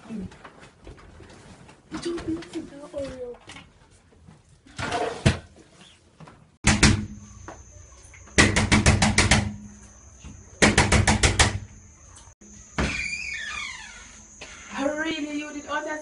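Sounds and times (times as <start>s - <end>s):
fist pounding on a door: 6.6s - 7.2s, 8.4s - 9.6s, 10.6s - 11.7s.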